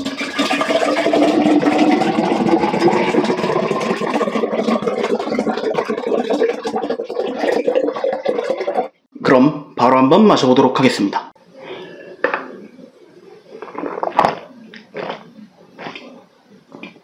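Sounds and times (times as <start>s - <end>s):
drink pouring into a glass: 0.0s - 8.9s.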